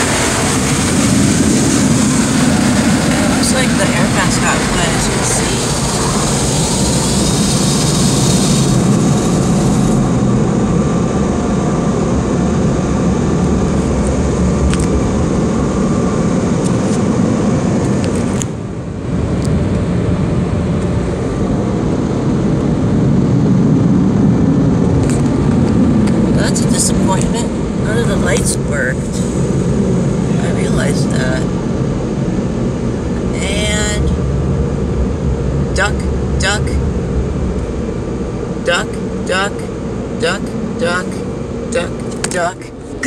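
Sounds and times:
air dryers blowing on car: 0:00.0 - 0:10.3.

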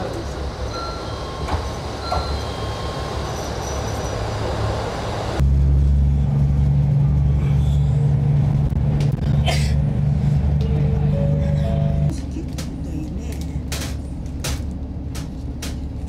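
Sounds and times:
diesel engine idling: 0:00.0 - 0:05.4
train rumbling: 0:00.0 - 0:16.0.

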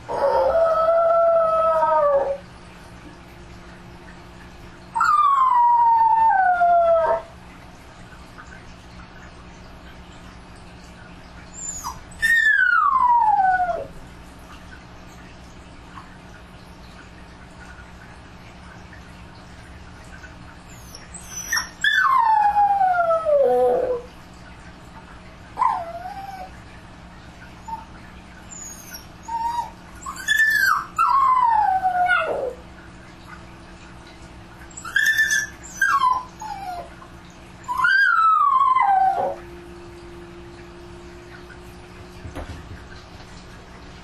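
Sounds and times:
dog howling and whining: 0:00.0 - 0:02.4, 0:05.0 - 0:07.4, 0:11.5 - 0:14.0, 0:20.7 - 0:24.1, 0:25.6 - 0:26.6, 0:28.5 - 0:32.6, 0:34.7 - 0:37.0, 0:37.6 - 0:39.6.

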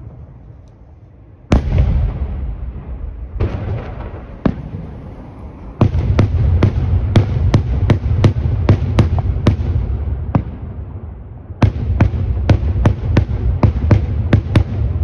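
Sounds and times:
continuous rumble: 0:00.0 - 0:15.0.

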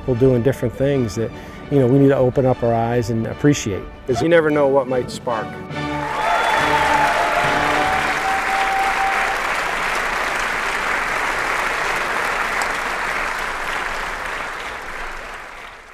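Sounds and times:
crowd applauding: 0:06.0 - 0:15.9.

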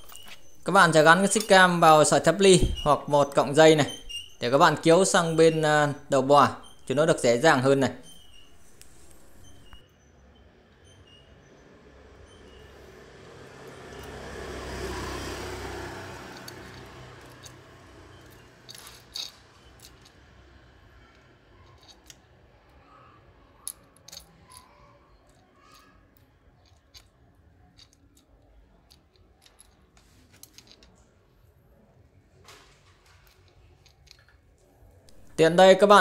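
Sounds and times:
metal chain clicking and rattling: 0:00.0 - 0:09.8, 0:12.3 - 0:22.3, 0:23.6 - 0:31.0, 0:33.0 - 0:34.4, 0:35.1 - 0:35.6.

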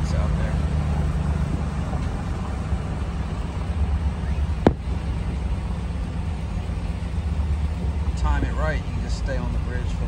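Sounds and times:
low rumble: 0:00.4 - 0:10.0
firework bang: 0:04.6 - 0:05.1.

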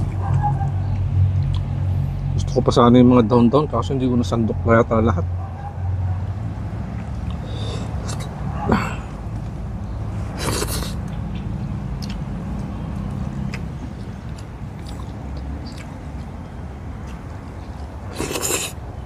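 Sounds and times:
wet chewing clicks: 0:00.8 - 0:01.7, 0:06.9 - 0:08.4, 0:10.4 - 0:18.8
man slurping: 0:07.3 - 0:09.2, 0:10.4 - 0:11.0, 0:18.1 - 0:18.8.

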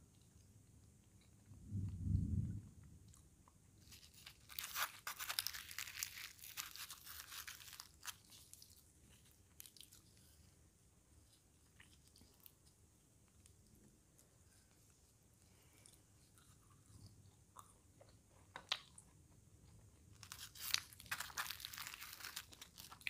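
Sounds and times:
crisp crackling and crunching: 0:03.8 - 0:10.4, 0:20.1 - 0:23.0.

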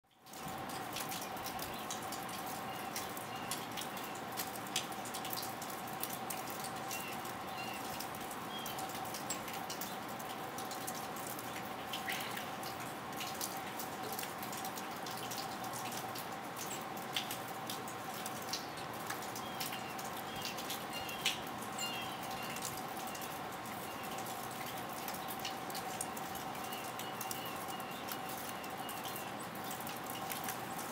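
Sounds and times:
faint irregular ticks and clicks: 0:00.1 - 0:21.4.

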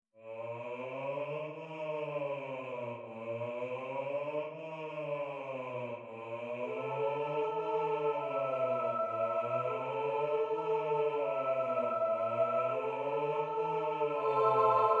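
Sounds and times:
soprano voice singing: 0:06.5 - 0:15.0.

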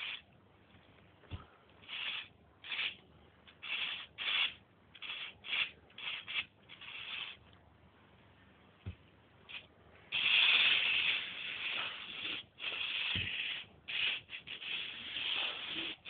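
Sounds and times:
toy vehicle motor rasping: 0:03.6 - 0:07.4.

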